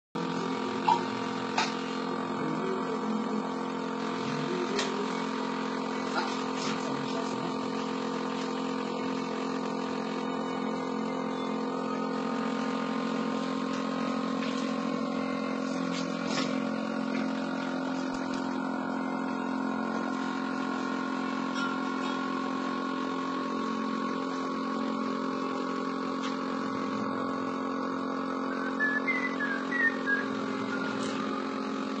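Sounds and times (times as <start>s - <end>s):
bottle-filling machine humming: 0.2s - 32.0s.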